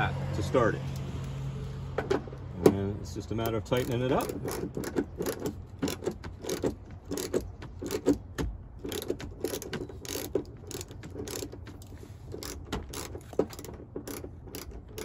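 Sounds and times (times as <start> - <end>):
ratchet clicking: 3.4 - 15.0.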